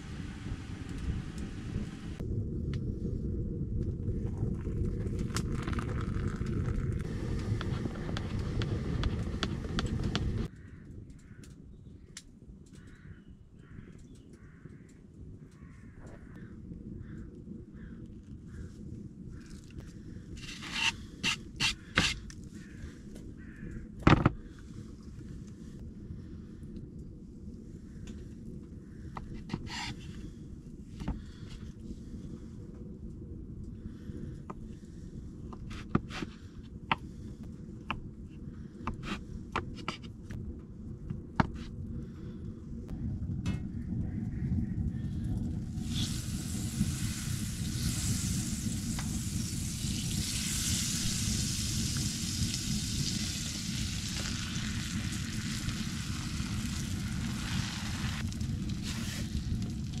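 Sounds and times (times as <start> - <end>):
steady low rumble: 0.0 - 60.0
food sizzling in a pan: 45.8 - 56.5.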